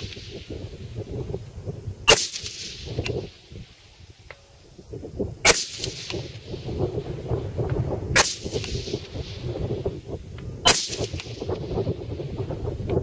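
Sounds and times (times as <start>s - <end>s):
wind rumbling on microphone: 0.0s - 13.0s
rifle shots echoing: 2.1s - 3.0s, 5.4s - 6.7s, 8.2s - 9.5s, 10.7s - 11.5s.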